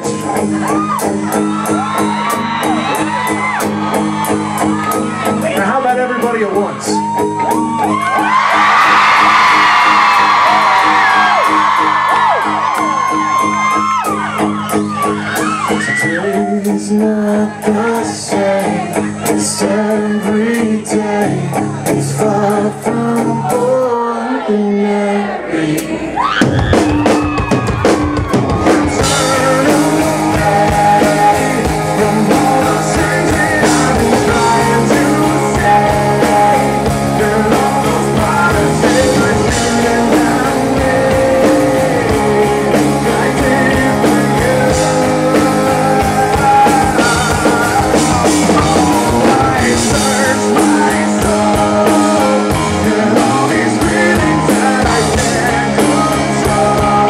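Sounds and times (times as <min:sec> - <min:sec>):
drum kit: 0:00.0 - 0:23.4, 0:25.8 - 0:57.0
bass guitar: 0:00.0 - 0:24.3, 0:26.0 - 0:57.0
electric guitars: 0:00.0 - 0:24.4, 0:26.2 - 0:57.0
man singing: 0:15.8 - 0:26.1, 0:28.7 - 0:57.0.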